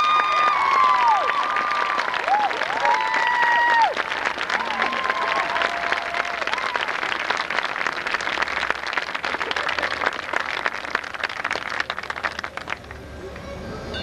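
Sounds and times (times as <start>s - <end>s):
faint cheers: 0.0s - 7.0s
crowd applauding: 0.0s - 13.5s.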